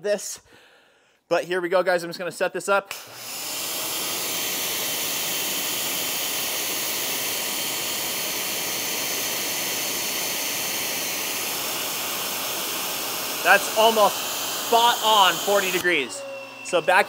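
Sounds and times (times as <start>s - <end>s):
pressure washer spraying water: 3.5s - 16.0s.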